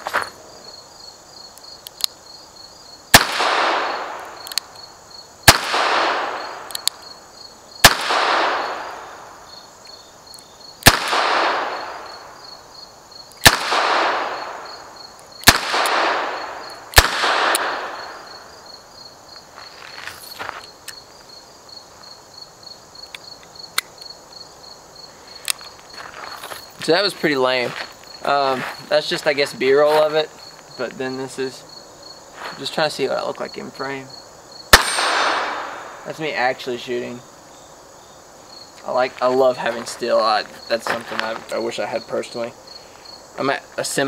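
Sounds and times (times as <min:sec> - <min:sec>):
insects chirping: 0:00.0 - 0:44.0
gun handling clicks: 0:01.6 - 0:02.2, 0:04.1 - 0:04.7, 0:06.6 - 0:07.0, 0:23.0 - 0:24.0, 0:25.4 - 0:25.7
revolver shots with echo: 0:34.7 - 0:36.0.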